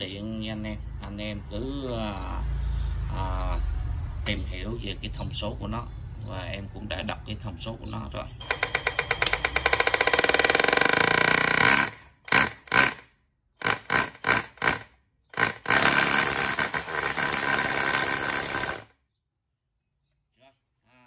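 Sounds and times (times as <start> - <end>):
rotary hammer drilling masonry: 8.4 - 19.0.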